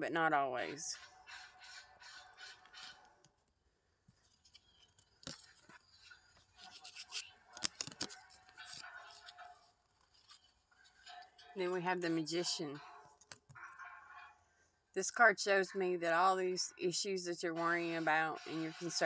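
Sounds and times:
cards rustling and sliding: 0:06.6 - 0:09.3.

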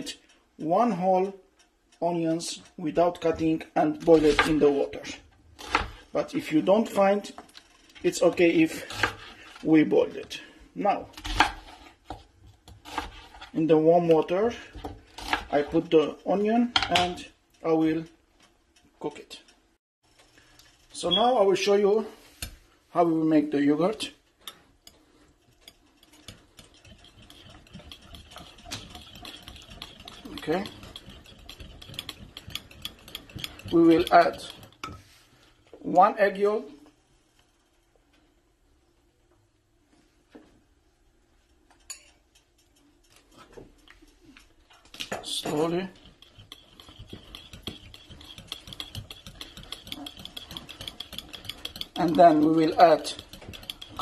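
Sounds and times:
whisk clicking against glass bowl: 0:25.6 - 0:34.9, 0:44.9 - 0:54.0.

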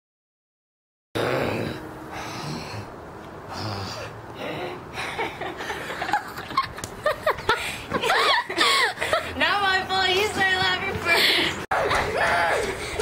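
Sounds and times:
people laughing: 0:05.0 - 0:09.4.

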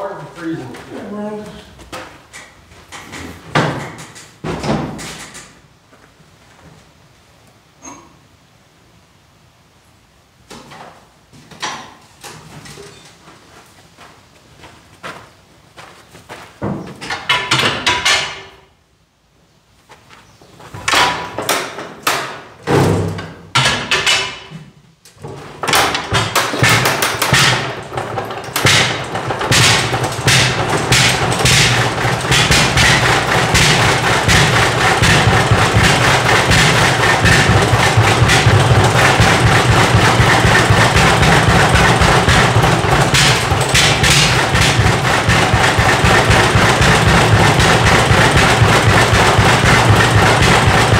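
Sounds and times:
tractor engine knocks and pops: 0:01.9 - 0:05.5, 0:16.6 - 0:18.5, 0:20.8 - 0:50.9
tractor engine running: 0:25.6 - 0:50.9.

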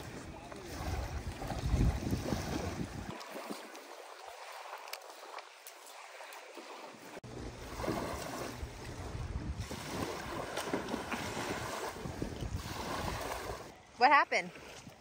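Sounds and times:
wind rumbling on microphone: 0:00.0 - 0:03.1, 0:07.3 - 0:13.8
faint beach ambience: 0:00.0 - 0:15.0
small waves lapping on shore: 0:00.0 - 0:15.0.

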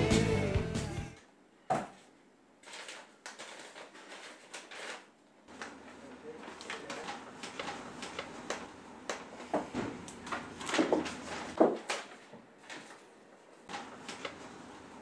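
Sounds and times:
paper rustling and crinkling: 0:02.6 - 0:08.4, 0:10.2 - 0:14.5.

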